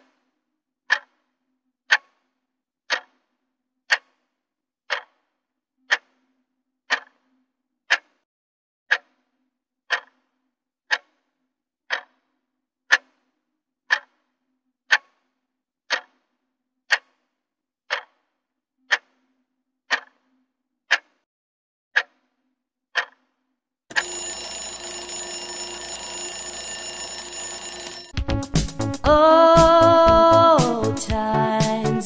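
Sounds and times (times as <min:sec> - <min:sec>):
clock ticking: 0:02.9 - 0:03.1, 0:04.9 - 0:05.1, 0:06.9 - 0:07.1, 0:23.9 - 0:32.0
alarm clock ringing: 0:23.9 - 0:28.2.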